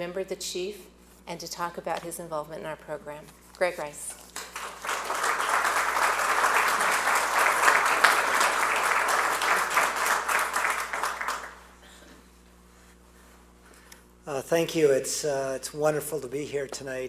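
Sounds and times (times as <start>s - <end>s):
audience applauding: 4.3s - 11.8s.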